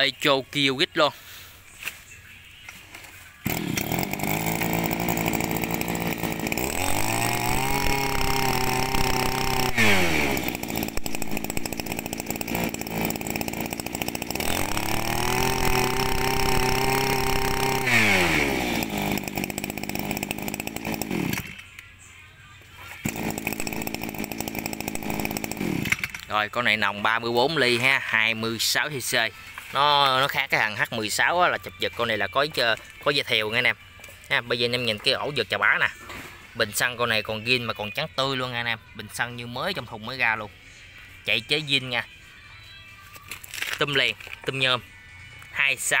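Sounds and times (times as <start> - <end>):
brush cutter engine revving: 3.4 - 21.8, 22.8 - 31.2.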